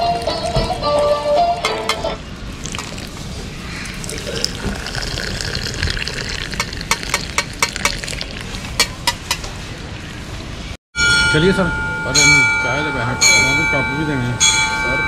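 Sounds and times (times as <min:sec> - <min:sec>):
tea pouring into ceramic cups: 0:00.0 - 0:01.0, 0:02.6 - 0:08.9.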